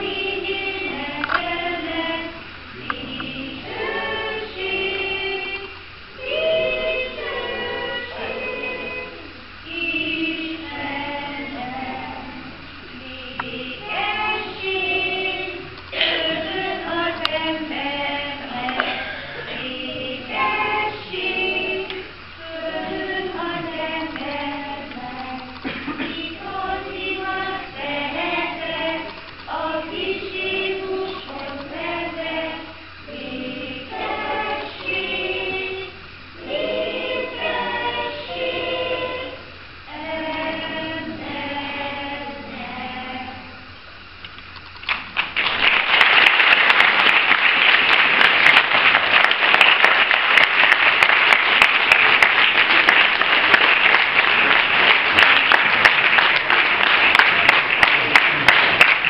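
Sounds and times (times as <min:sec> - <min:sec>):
children singing together: 0:00.0 - 0:43.7
audience applause: 0:44.9 - 0:59.0.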